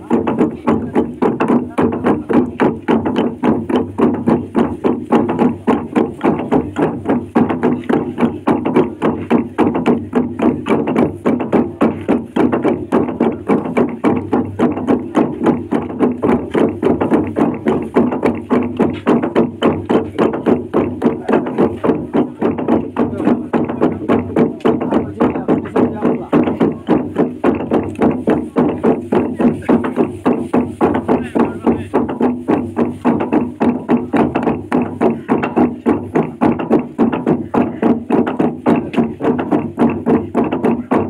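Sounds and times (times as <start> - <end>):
log drum beaten with wooden batons: 0.0 - 41.0.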